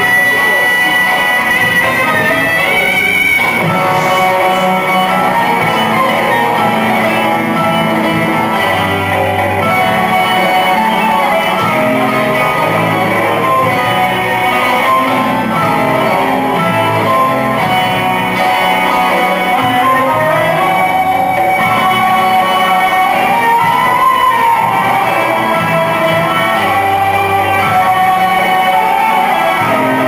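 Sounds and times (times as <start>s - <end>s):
folk dance music on plucked strings: 0.0s - 30.0s.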